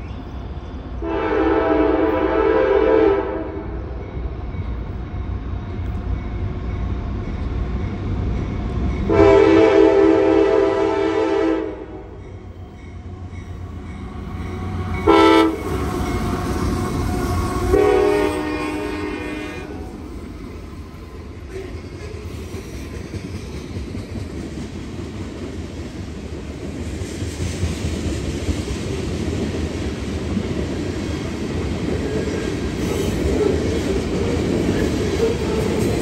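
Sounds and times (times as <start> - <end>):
passing train rumble: 0.0 - 36.0
train horn blasts: 1.0 - 3.9, 9.1 - 12.2, 14.3 - 20.0.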